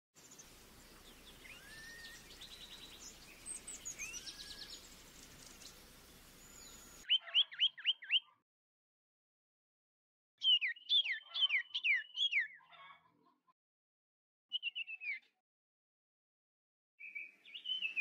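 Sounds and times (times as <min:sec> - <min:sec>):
steady hiss: 0:00.2 - 0:07.0
songbirds chirping: 0:00.2 - 0:08.4, 0:10.4 - 0:13.4, 0:17.0 - 0:18.0
bird sharp upward-sweeping call: 0:01.4 - 0:02.2.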